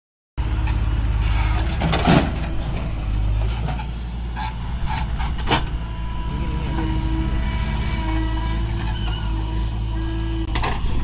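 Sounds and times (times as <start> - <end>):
diesel engines running: 0.4 - 11.0
soil crashing into trailer: 1.7 - 2.8.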